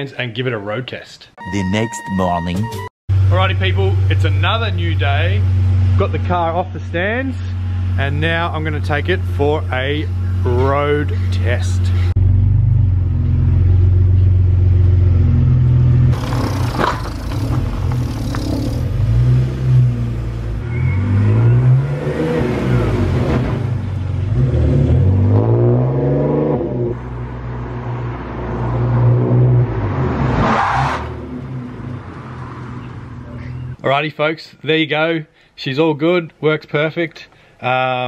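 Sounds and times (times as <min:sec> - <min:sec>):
car engine accelerating and slowing: 0:07.0 - 0:33.2.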